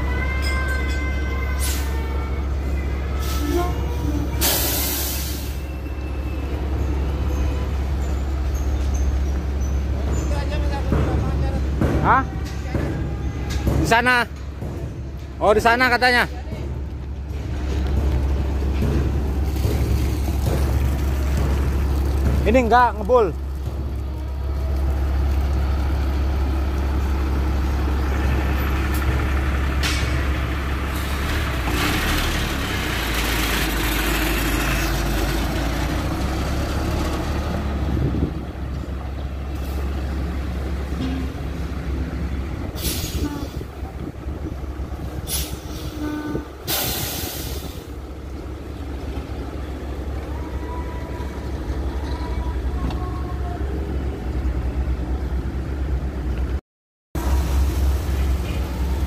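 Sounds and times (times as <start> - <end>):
diesel engine rumbling: 0.0 - 59.0.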